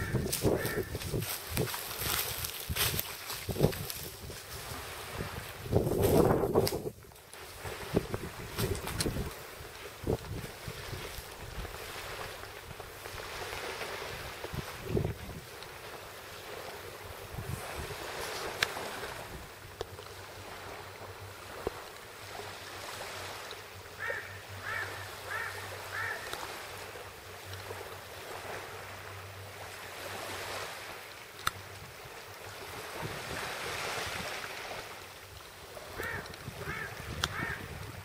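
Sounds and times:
wind on microphone: 0:00.0 - 0:15.6, 0:17.1 - 0:19.7, 0:31.6 - 0:34.6, 0:35.8 - 0:38.0
small waves lapping on shore: 0:00.0 - 0:38.0.

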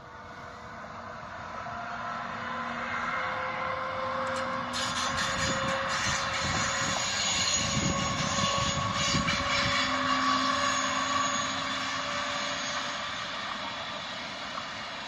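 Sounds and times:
electric train whine: 0:00.0 - 0:15.0
wheels rumbling on rail: 0:00.0 - 0:15.0.

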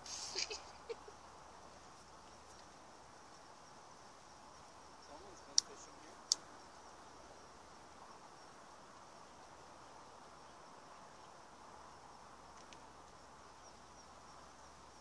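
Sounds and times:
insects humming: 0:00.0 - 0:15.0
faint click: 0:12.5 - 0:12.8.

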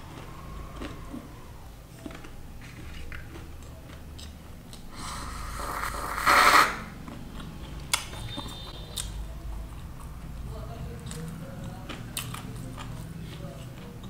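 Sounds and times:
person slurping liquid: 0:04.9 - 0:07.0.

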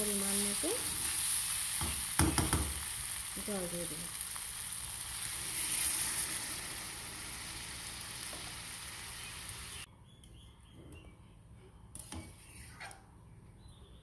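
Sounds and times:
water hissing in hot pan: 0:00.0 - 0:09.9.

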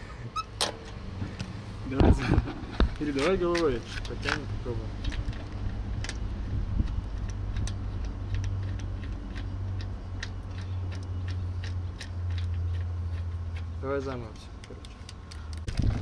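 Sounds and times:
steady low hum: 0:00.0 - 0:16.0
sharp metallic clicks of wheel bolt: 0:00.4 - 0:01.5.

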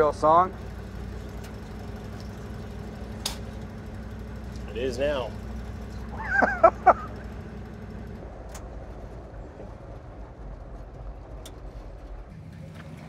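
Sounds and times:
truck engine and road rumble: 0:00.0 - 0:13.0
person laughing: 0:06.1 - 0:07.2.

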